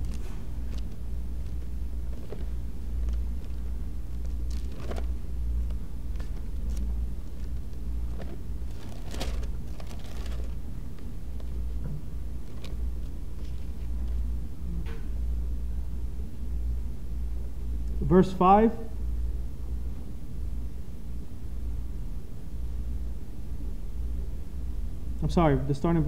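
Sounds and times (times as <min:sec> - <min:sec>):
soft paper rustles: 0:00.0 - 0:14.2
low room hum: 0:00.0 - 0:26.0.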